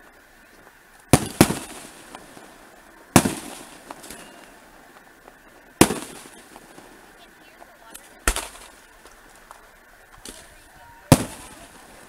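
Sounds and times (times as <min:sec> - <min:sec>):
fireworks bursting: 0:00.0 - 0:12.0
faint pops: 0:07.6 - 0:11.9.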